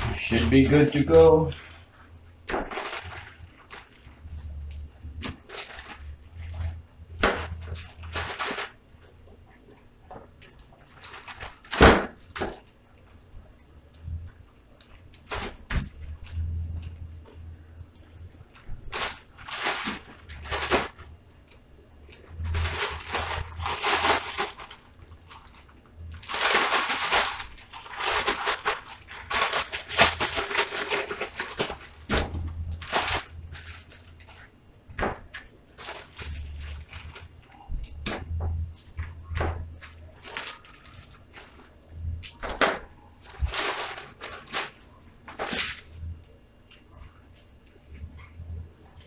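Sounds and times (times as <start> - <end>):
plastic bag rustling and crinkling: 0.0 - 8.8, 10.5 - 12.8, 14.0 - 17.1, 18.0 - 21.2, 22.0 - 46.1.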